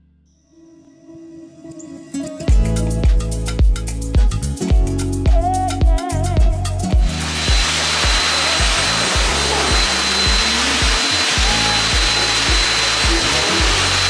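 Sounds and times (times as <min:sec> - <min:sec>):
background music with beat: 0:01.5 - 0:14.0
pet dryer blowing air: 0:07.0 - 0:14.0.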